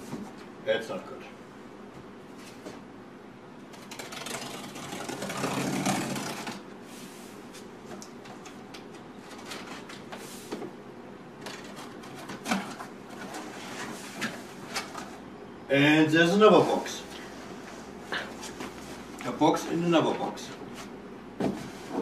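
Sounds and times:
cardboard scraping and rustling: 3.8 - 6.6.

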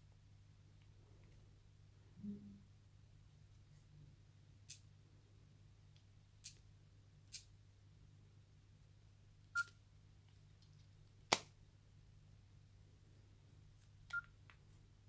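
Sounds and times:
phone touch tone beep: 9.5 - 9.7.

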